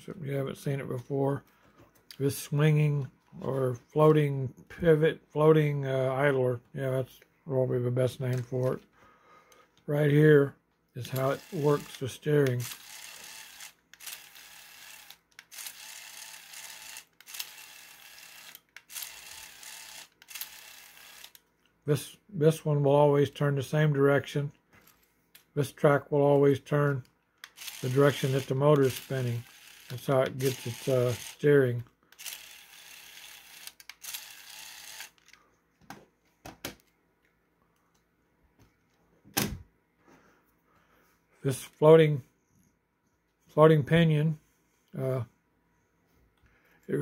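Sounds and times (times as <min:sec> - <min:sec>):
toy gear motor whirring: 0:11.0 - 0:21.4, 0:27.4 - 0:35.4.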